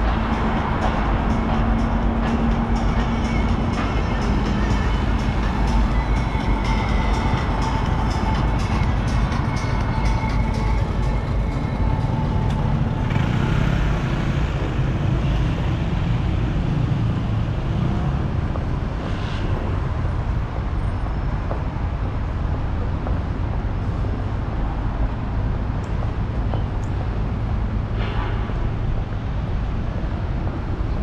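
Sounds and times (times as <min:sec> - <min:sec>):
road traffic rumble: 0:00.0 - 0:31.0.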